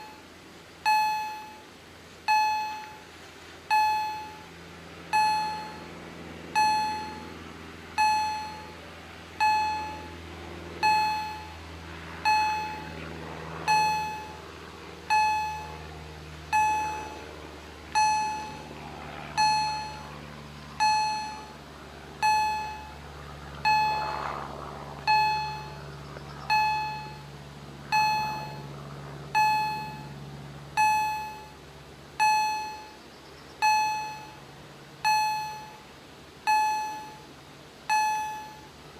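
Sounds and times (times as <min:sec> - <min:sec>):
faint low hum: 0:00.0 - 0:38.9
level crossing bell dinging: 0:08.0 - 0:08.7, 0:09.4 - 0:10.1, 0:10.8 - 0:11.5, 0:16.5 - 0:17.2, 0:19.4 - 0:20.0, 0:20.8 - 0:21.5, 0:27.9 - 0:28.6, 0:32.2 - 0:32.9, 0:36.5 - 0:37.2, 0:37.9 - 0:38.7.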